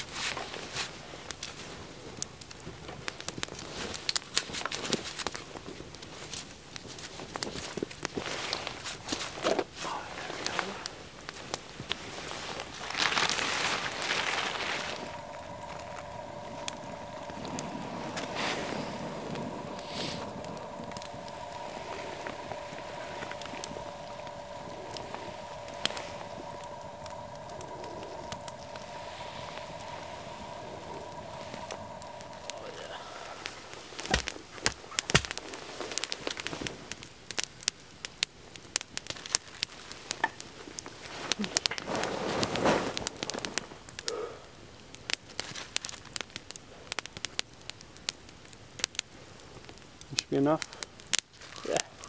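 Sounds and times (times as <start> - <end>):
campfire crackling: 0.0 - 52.0
fire popping: 0.0 - 52.0
steady hiss: 0.0 - 52.0
plastic bag rustling: 12.0 - 15.2.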